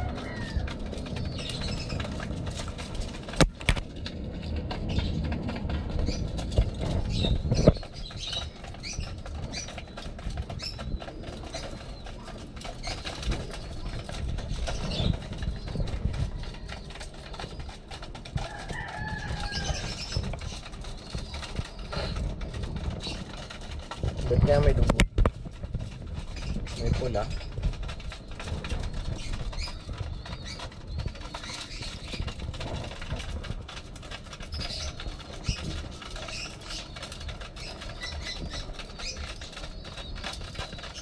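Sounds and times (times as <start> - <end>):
pecking and scuffling: 0.0 - 41.0
pigeons flapping wings: 0.0 - 41.0.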